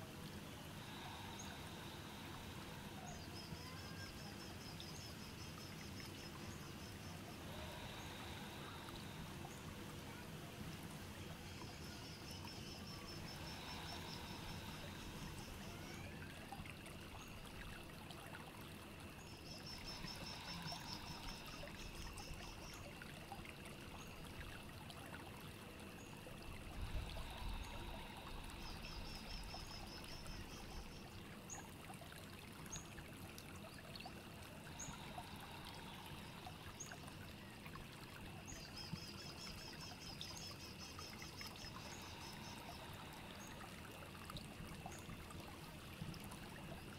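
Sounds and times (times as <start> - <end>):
trickling water: 0.0 - 46.9.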